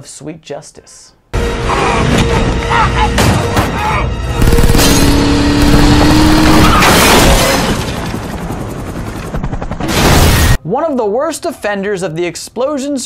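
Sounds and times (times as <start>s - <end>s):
film score music: 1.3s - 9.9s
debris crashing and shattering: 5.8s - 8.4s.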